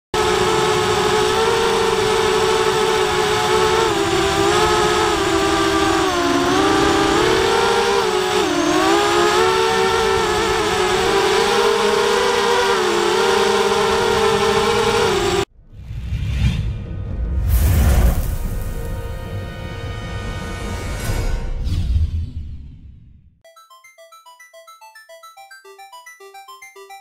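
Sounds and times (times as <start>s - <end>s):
drone motors whining: 0.2s - 15.5s.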